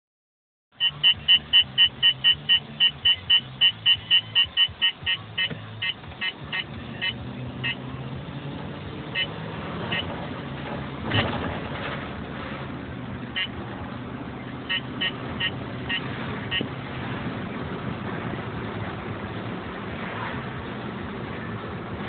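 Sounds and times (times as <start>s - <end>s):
radar detector beeping: 0.8s - 7.8s, 14.7s - 16.7s.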